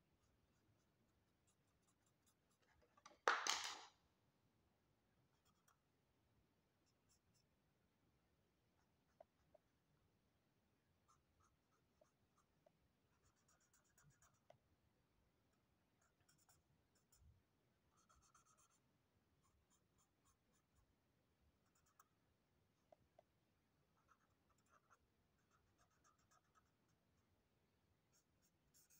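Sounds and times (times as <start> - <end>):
marker scratching on paper: 11.1 - 14.5, 17.9 - 18.8, 24.0 - 27.0, 28.1 - 28.9.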